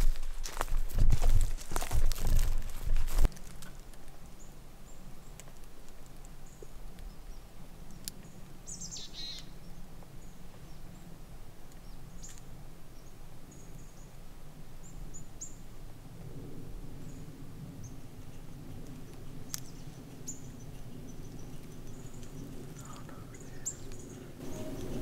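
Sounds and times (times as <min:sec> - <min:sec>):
downward-sweeping bird call: 0:08.7 - 0:09.6, 0:23.4 - 0:25.0
high bird chirps: 0:08.7 - 0:09.6, 0:23.3 - 0:25.0.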